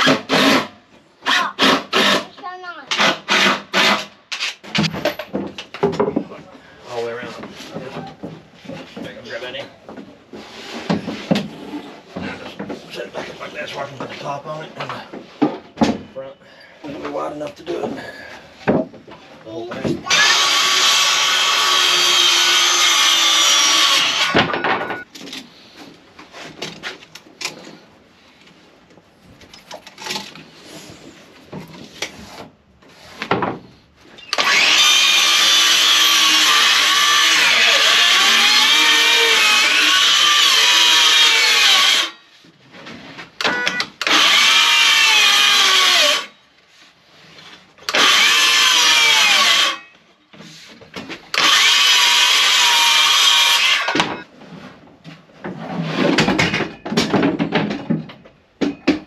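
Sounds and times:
circular saw cutting wood: 0.0s - 4.1s, 20.0s - 24.4s, 34.3s - 42.3s, 43.5s - 46.4s, 47.8s - 49.9s, 51.4s - 54.0s.

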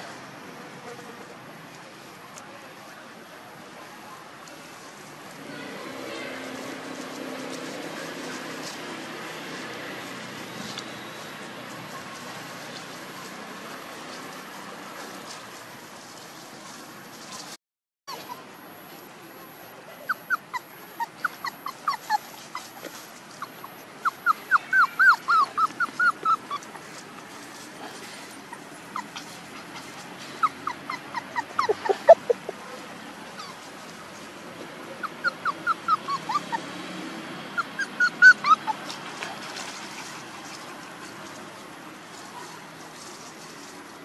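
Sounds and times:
puppy whimpering: 18.1s - 18.4s, 20.0s - 27.0s, 28.3s - 32.7s, 33.4s - 33.7s, 35.0s - 36.7s, 37.6s - 39.0s.

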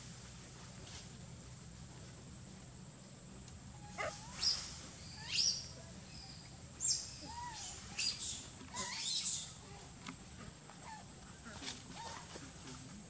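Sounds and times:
baby monkey squealing: 6.9s - 9.4s.

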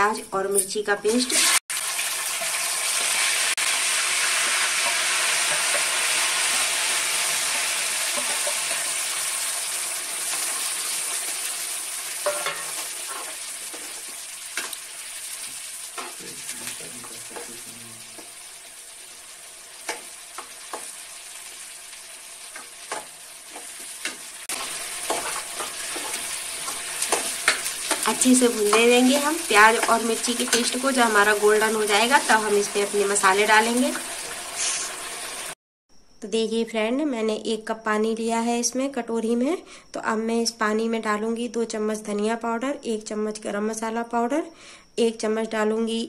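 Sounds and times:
paste sizzling in hot oil: 1.3s - 35.6s
steel ladle scraping a pan: 12.1s - 14.8s, 22.6s - 28.8s.

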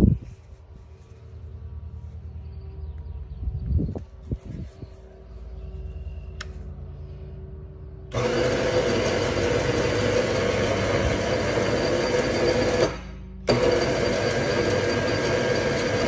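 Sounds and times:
electric hoist motor whirring: 8.1s - 16.0s.

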